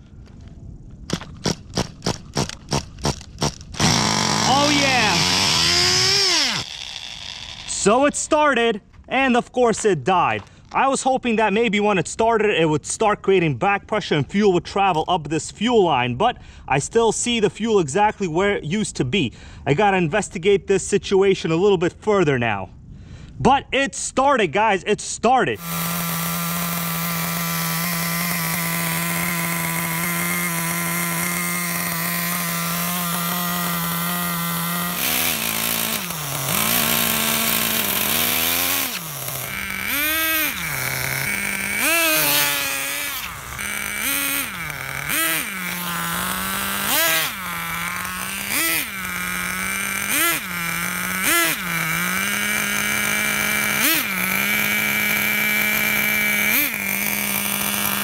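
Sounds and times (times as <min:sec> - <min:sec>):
small rc car engine revving: 0:01.1 - 0:08.1, 0:25.6 - 0:58.0.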